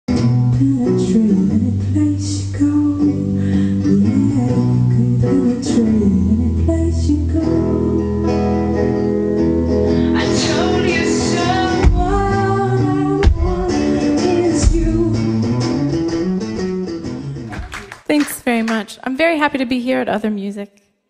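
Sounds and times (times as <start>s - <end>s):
electric guitar playing: 0.1s - 19.2s
woman singing: 0.2s - 8.6s, 10.1s - 15.7s.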